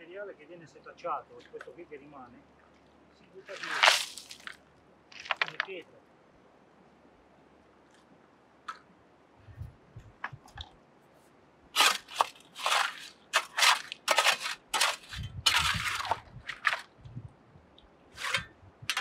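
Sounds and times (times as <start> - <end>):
shovel scraping into wet gravel: 3.4 - 4.6, 11.8 - 16.9, 18.1 - 19.0.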